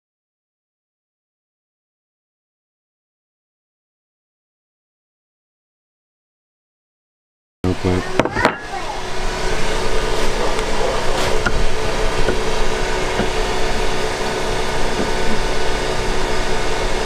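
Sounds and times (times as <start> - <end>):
machine drone: 7.6 - 17.0.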